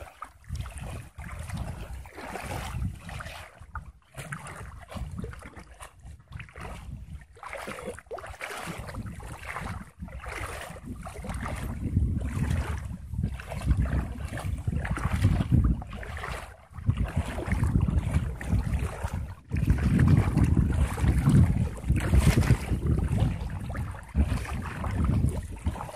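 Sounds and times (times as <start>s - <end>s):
shallow water sloshing and splashing: 0.0s - 25.9s
wind buffeting microphone: 0.0s - 25.9s.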